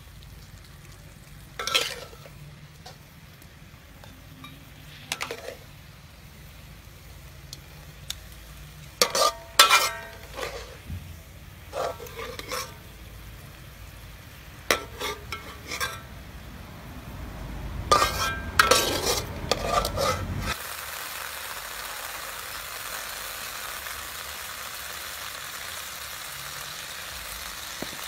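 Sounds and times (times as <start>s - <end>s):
oil sizzling in a pan: 0.0s - 28.0s
metal ladle scraping a wok: 1.5s - 6.6s, 7.6s - 16.4s, 17.9s - 20.6s.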